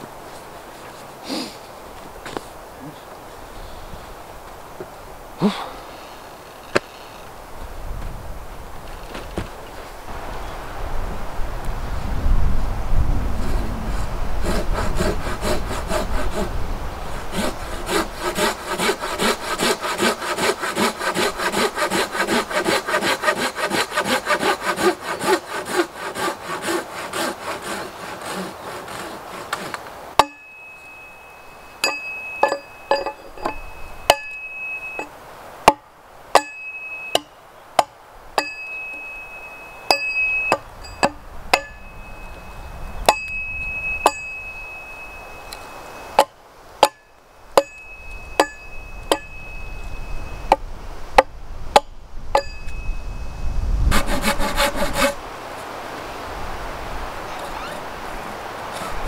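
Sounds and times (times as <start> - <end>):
hand saw cutting log: 13.4 - 31.2, 31.8 - 35.1, 36.4 - 37.3, 38.4 - 41.9, 47.6 - 49.6, 53.9 - 55.2
axe chopping wood: 30.2 - 30.4
high ring: 30.2 - 35.2, 36.3 - 37.4, 38.4 - 50.6, 51.8 - 54.2.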